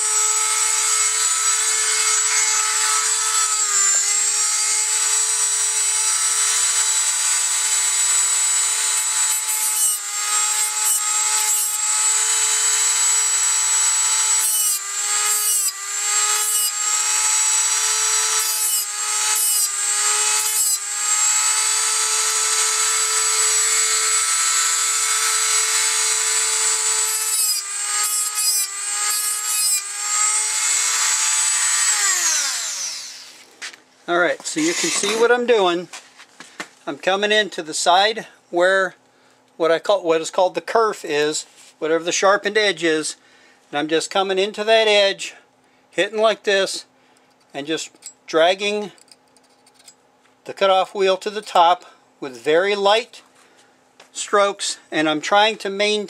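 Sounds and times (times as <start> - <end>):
gritty grinding on saw blade: 0.0 - 33.5, 34.5 - 35.4
rotary tool high whine: 0.0 - 33.5, 34.5 - 35.4.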